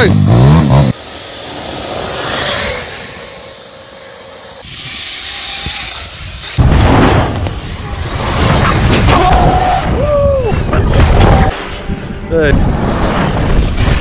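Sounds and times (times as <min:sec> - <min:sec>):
electric motor whine: 0:00.7 - 0:06.6
tyres and wind hiss: 0:00.9 - 0:06.6.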